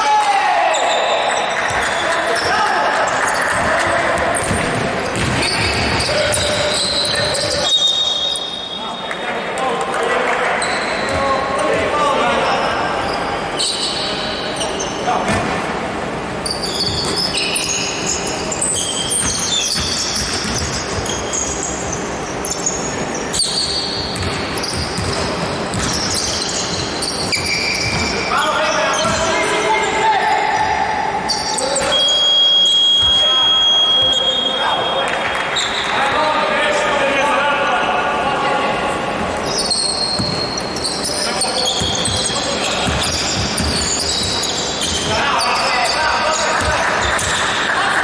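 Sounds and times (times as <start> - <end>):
indoor hall din: 0.0 - 48.0
sneakers squeaking on floor: 0.7 - 9.2, 10.5 - 36.3, 39.1 - 48.0
basketball bouncing: 3.3 - 7.6, 19.1 - 22.0, 24.1 - 28.2, 40.1 - 40.8, 41.7 - 45.2, 46.6 - 47.5.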